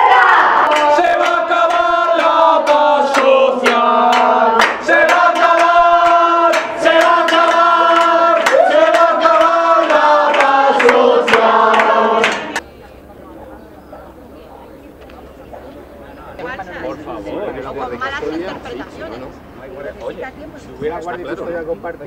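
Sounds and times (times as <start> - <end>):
group singing a chant: 0.0 - 12.6.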